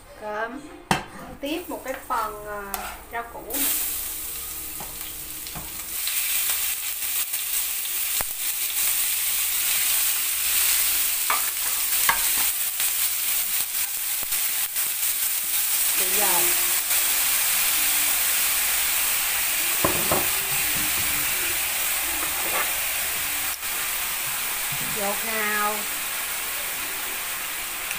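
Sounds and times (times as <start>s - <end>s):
wooden spatula scraping a pan: 1.9s - 3.1s, 22.2s - 22.9s
meat sizzling in hot oil: 3.4s - 27.9s.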